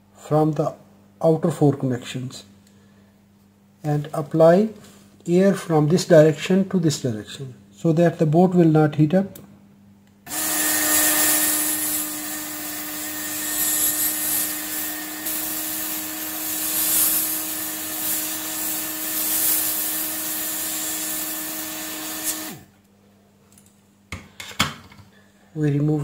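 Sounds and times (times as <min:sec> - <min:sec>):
hot air gun hissing: 0:10.3 - 0:22.7.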